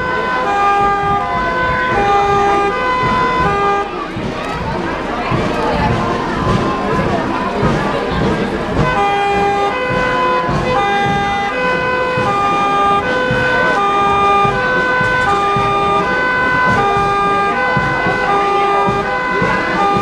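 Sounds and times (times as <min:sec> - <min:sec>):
two-tone emergency siren: 0:00.0 - 0:04.7, 0:08.8 - 0:20.0.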